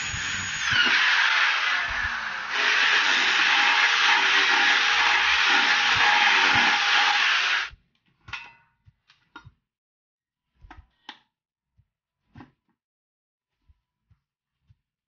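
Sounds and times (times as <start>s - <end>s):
electric drill boring into metal: 0.0s - 7.7s.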